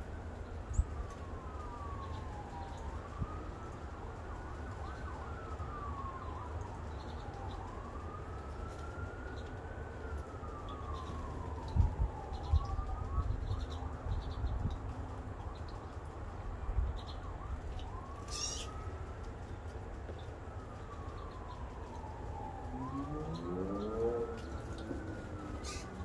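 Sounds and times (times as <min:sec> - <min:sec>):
emergency vehicle siren wailing: 0:00.0 - 0:26.0
faint bird chirps: 0:18.2 - 0:18.8.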